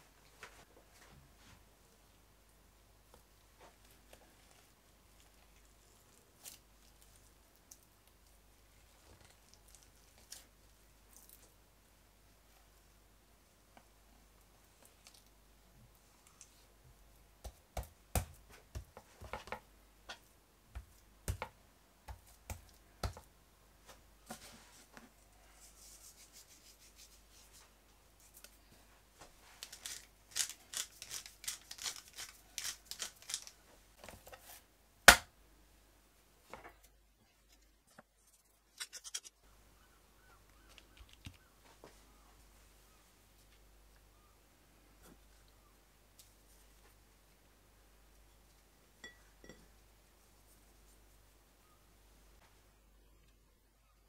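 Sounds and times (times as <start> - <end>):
soft handling of meat: 3.0 - 11.6
pepper mill grinding: 29.6 - 33.6.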